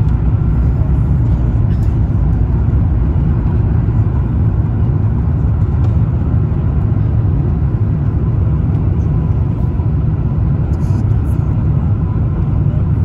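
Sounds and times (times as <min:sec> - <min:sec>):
airplane cabin rumble: 0:00.0 - 0:13.0.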